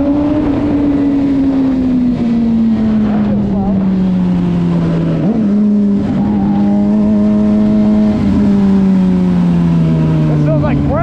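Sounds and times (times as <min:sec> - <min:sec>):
wind noise: 0:00.0 - 0:05.2
motorcycle engine running: 0:00.0 - 0:11.0.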